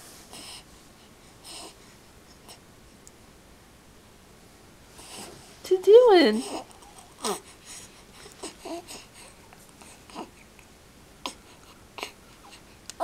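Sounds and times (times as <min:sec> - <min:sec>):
infant cooing: 0:06.4 - 0:07.5, 0:08.4 - 0:09.1, 0:10.1 - 0:10.4.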